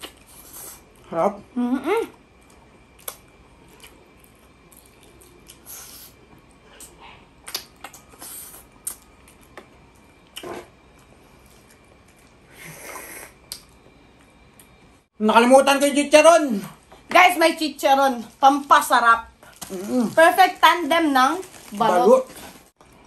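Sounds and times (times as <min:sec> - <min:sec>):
mouth clicks and smacks chewing: 0:07.4 - 0:08.1.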